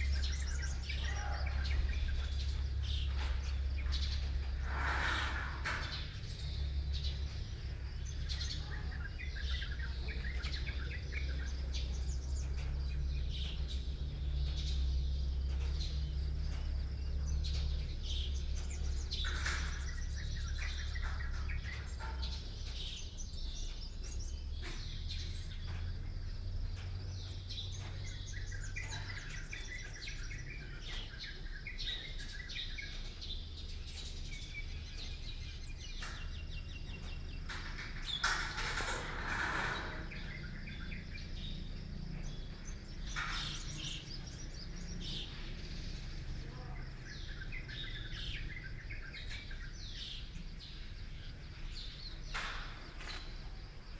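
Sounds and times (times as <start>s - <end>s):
steady low rumble: 0.0s - 38.2s
small birds chirping and trilling: 0.0s - 53.9s.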